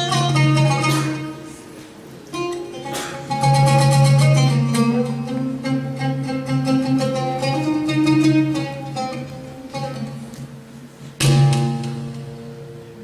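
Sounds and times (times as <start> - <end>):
plucked string instrument music: 0.0 - 13.0.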